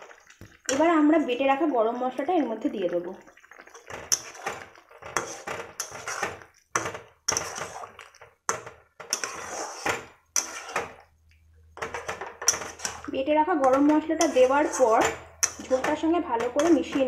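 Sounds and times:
spatula scraping thick curry in pan: 0:03.6 - 0:17.0.

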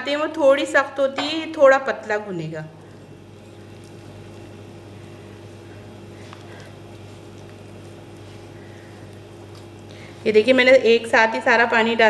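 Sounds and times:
steady low hum: 0:00.0 - 0:12.0
hands squishing dough: 0:02.8 - 0:10.8.

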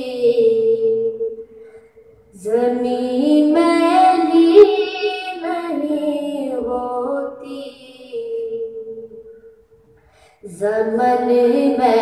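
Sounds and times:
child singing: 0:02.4 - 0:09.0, 0:10.5 - 0:12.0.

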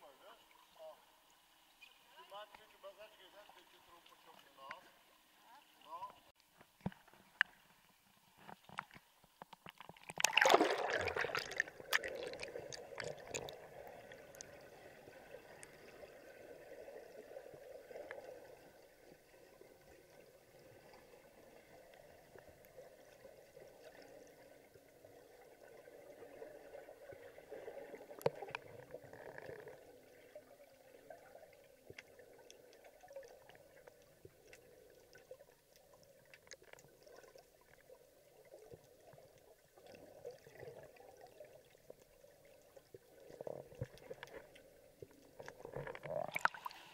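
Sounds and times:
underwater splashing: 0:03.5 - 0:46.9
underwater bubbling: 0:04.7 - 0:46.9.

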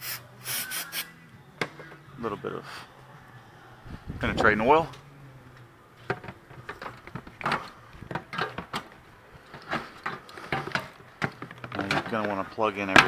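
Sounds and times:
plastic parts clicking and knocking: 0:06.0 - 0:13.0.

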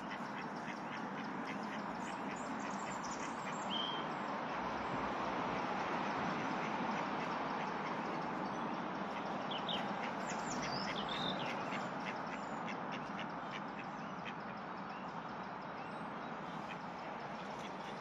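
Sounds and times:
ducks quacking: 0:00.0 - 0:03.6.

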